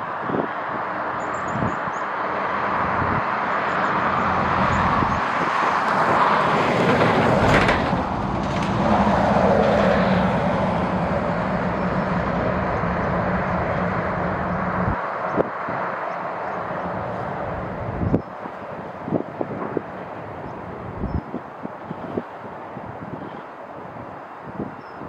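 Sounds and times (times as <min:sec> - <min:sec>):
wind rumbling on microphone: 0:00.0 - 0:25.0
jet airliner passing: 0:02.2 - 0:21.0.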